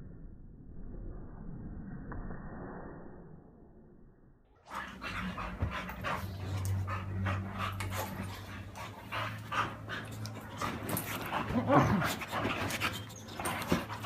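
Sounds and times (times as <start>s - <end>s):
dogs panting: 4.7s - 14.0s
low steady drone: 4.7s - 14.0s.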